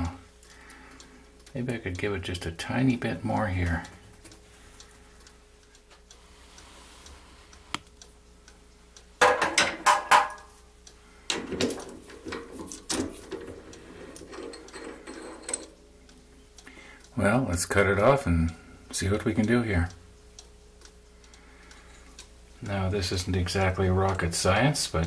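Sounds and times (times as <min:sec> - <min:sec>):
metal tools clinking on lathe chuck: 0:14.0 - 0:15.8.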